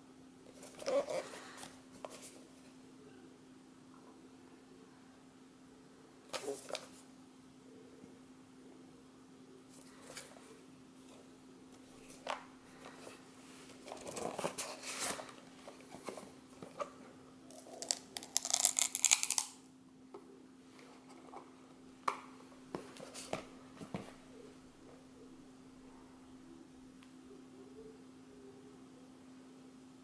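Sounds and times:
faint low hum: 0.0s - 30.0s.

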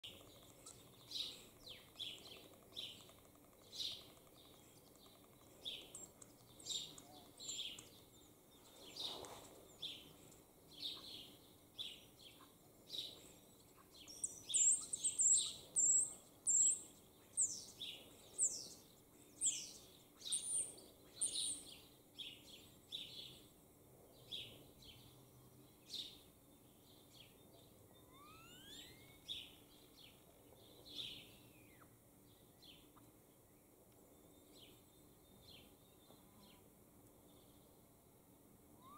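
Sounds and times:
starlings singing: 0.0s - 23.4s.

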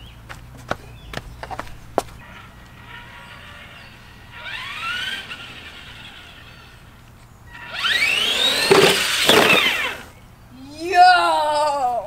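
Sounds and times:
toy car motor whining: 2.2s - 10.2s.

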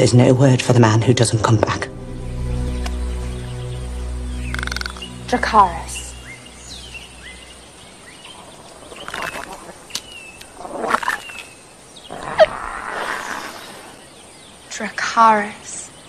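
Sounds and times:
creature chirping cries: 8.7s - 11.4s
breathy hiss: 12.5s - 14.2s.

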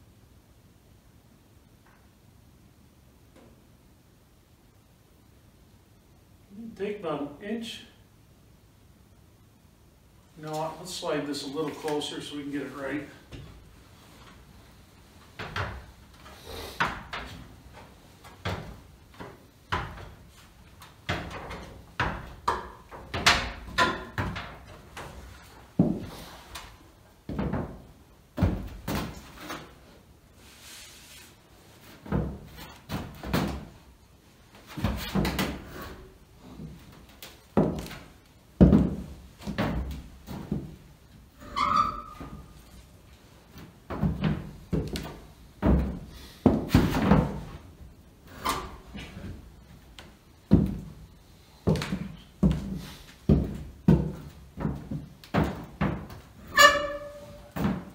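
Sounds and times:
steps on stepladder: 10.4s - 29.9s, 34.5s - 57.9s.

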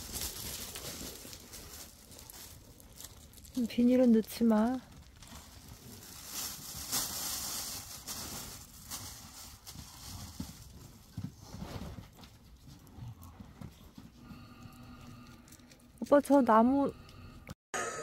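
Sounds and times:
fire crackling: 0.0s - 9.7s
loud rustling noise: 0.0s - 12.2s.

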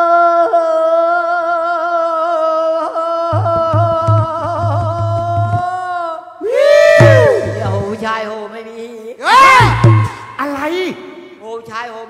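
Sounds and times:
regular drum beat: 7.0s - 8.1s, 9.6s - 10.6s.

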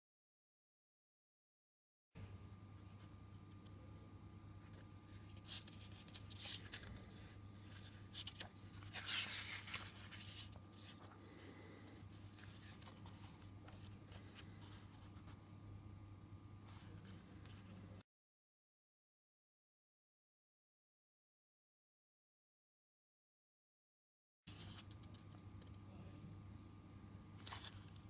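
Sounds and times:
book pages rustling: 4.7s - 15.4s, 16.6s - 18.0s, 27.4s - 28.0s.

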